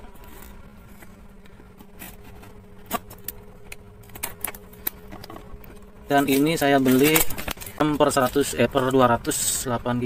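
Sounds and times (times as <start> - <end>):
steady low hum: 0.0 - 10.0
cardboard packaging clicks and scrapes: 0.2 - 3.3.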